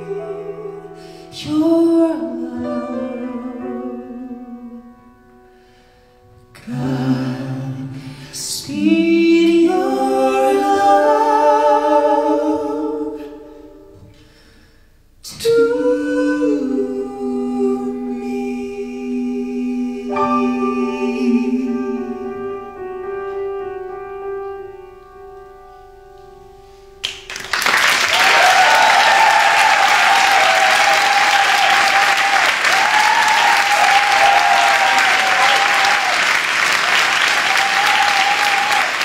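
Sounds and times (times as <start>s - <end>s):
man and woman singing duet: 0.0s - 4.8s, 6.6s - 13.5s, 15.2s - 22.8s
piano: 0.0s - 39.0s
audience applause and cheering: 27.1s - 39.0s.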